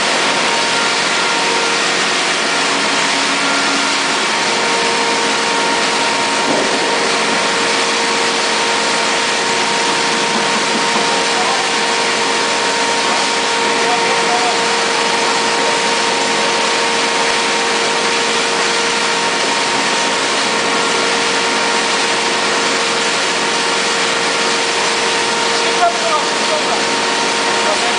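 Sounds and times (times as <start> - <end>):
grinding mill running: 0.0 - 27.9.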